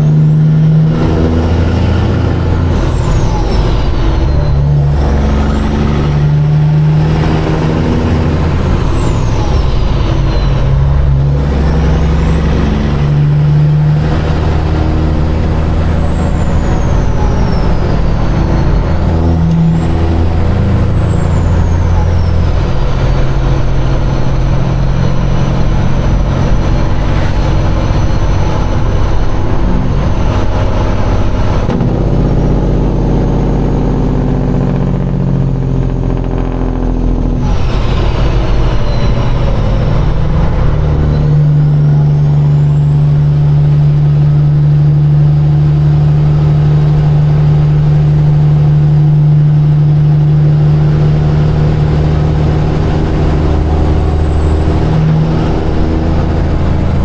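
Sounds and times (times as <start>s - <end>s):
diesel truck engine shifting gears: 0.0s - 57.0s
turbo whistle: 1.2s - 13.6s, 15.7s - 24.0s, 36.2s - 44.0s.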